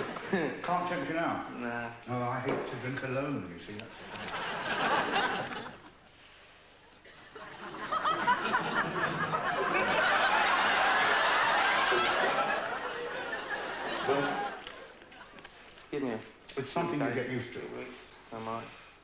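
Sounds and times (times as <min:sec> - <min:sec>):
audience laughing: 0:04.2 - 0:06.1, 0:07.1 - 0:15.6.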